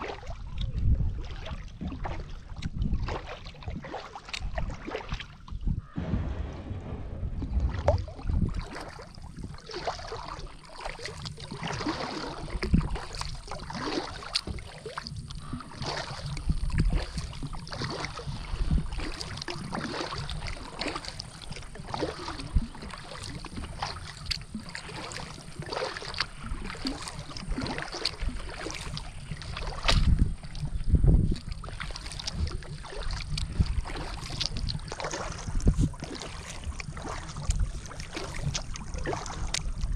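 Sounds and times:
kayak paddle strokes in water: 0.0 - 5.7, 8.2 - 39.9
low bumps: 6.0 - 9.7
water dripping from paddle: 9.7 - 39.9.

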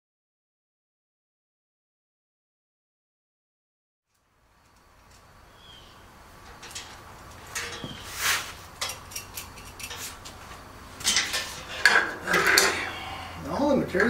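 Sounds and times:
small metal hardware clinking: 6.4 - 8.0, 8.7 - 10.4, 11.0 - 12.8.

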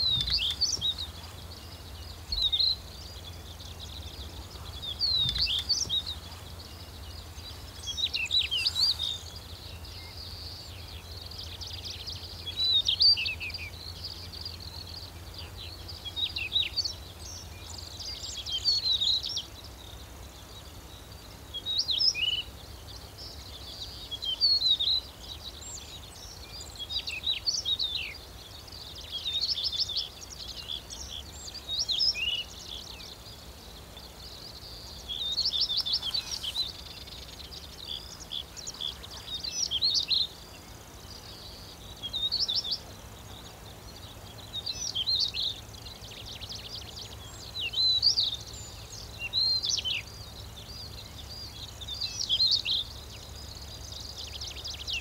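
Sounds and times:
bird chirping and twittering: 0.0 - 55.0.

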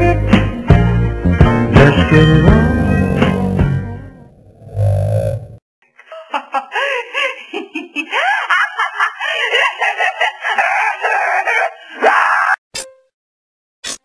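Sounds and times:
woman shrieking and squawking: 10.3 - 12.6.

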